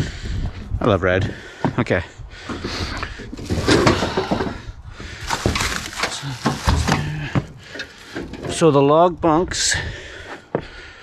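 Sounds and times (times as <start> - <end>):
plastic shrink-wrap crinkling: 5.3 - 6.9.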